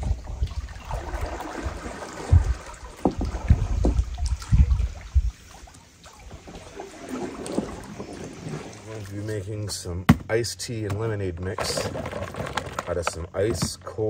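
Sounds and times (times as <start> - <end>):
water lapping and slapping: 0.0 - 9.4.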